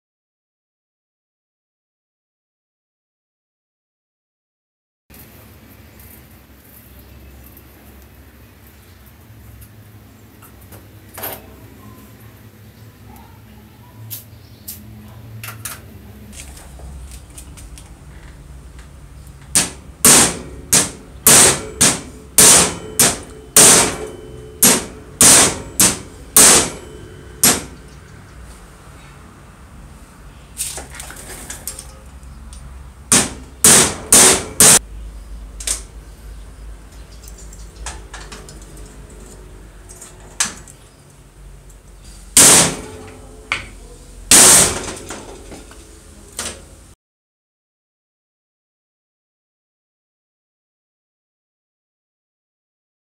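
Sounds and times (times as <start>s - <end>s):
hammer striking metal shaft: 19.5s - 28.0s, 33.1s - 34.8s, 42.4s - 43.7s, 44.3s - 45.2s.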